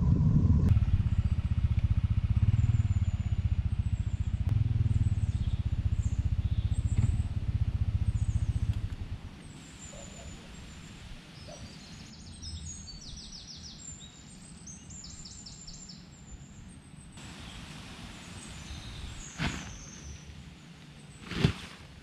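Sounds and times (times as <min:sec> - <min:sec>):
small birds chirping: 0:00.9 - 0:21.5
tarp being shaken out: 0:19.2 - 0:20.0, 0:21.1 - 0:22.0.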